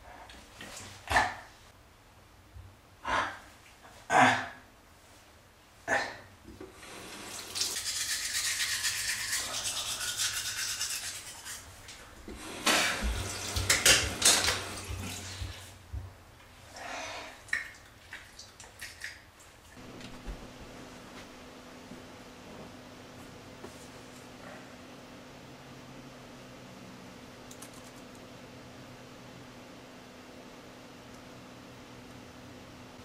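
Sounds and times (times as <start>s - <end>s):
toothbrush scrubbing teeth: 7.4s - 12.0s.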